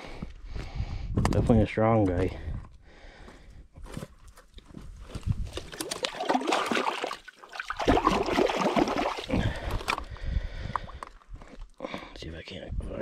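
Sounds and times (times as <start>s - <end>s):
hand splashing in water: 5.7s - 9.4s.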